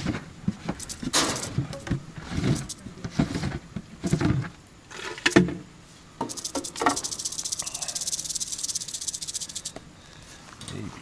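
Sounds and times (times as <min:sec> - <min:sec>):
rustles and knocks: 0:00.0 - 0:05.6
rattlesnake tail rattling: 0:00.7 - 0:02.9, 0:04.0 - 0:04.4, 0:06.2 - 0:09.8.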